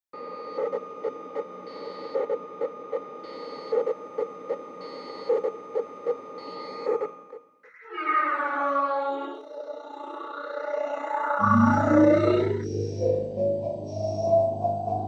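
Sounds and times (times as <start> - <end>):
high electronic drone: 9.4 - 15.0
low electronic pulses: 9.4 - 15.0
short high beep: 11.4 - 12.7.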